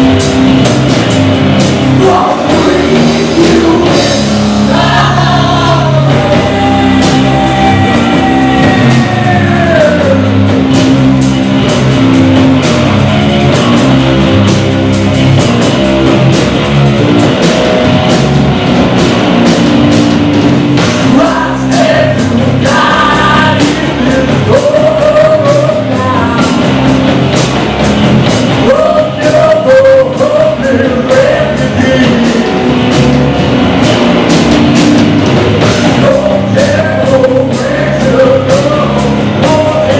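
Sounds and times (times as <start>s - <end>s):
rock band playing live: 0.0s - 39.9s
person singing: 1.9s - 10.5s, 21.0s - 26.8s, 28.6s - 32.6s, 35.8s - 39.9s.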